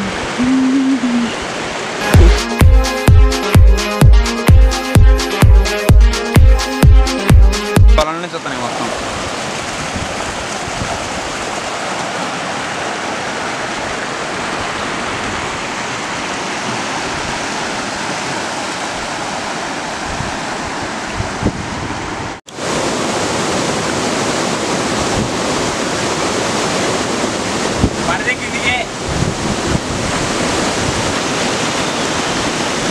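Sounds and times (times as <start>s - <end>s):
stream rushing over rocks: 0.0s - 3.9s, 7.5s - 32.9s
wind on microphone: 9.1s - 11.4s, 19.9s - 22.4s, 23.7s - 26.1s, 27.0s - 28.1s, 28.9s - 32.9s.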